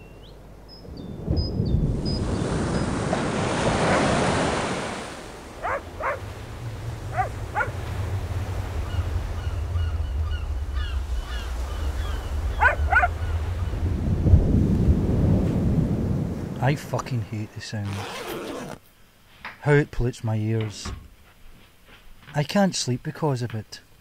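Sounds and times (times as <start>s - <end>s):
low rumble of wind: 0.0s - 18.8s
surf breaking on a beach: 1.2s - 17.0s
dog barking: 5.6s - 6.3s, 7.1s - 7.8s, 12.6s - 13.2s.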